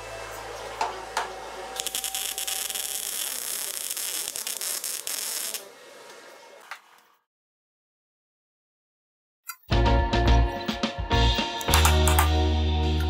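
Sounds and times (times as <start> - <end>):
welder arc crackling: 1.8 - 5.8.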